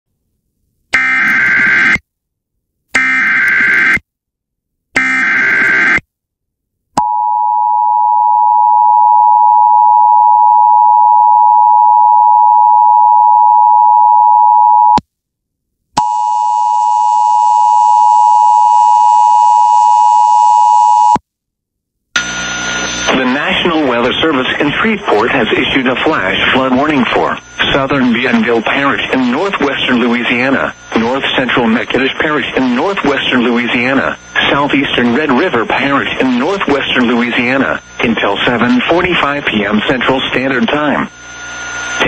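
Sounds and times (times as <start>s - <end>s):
buzzy steady tone: 22.2s - 42.0s.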